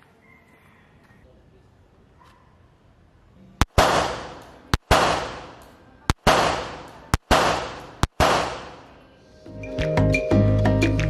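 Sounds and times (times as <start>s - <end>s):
pistol shots echoing: 3.6s - 9.0s.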